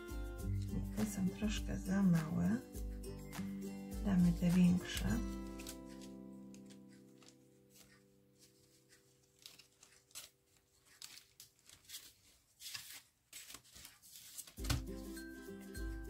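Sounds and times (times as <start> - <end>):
background music: 0.0 - 9.5, 14.6 - 16.0
chipboard sheets rustling: 4.1 - 15.0.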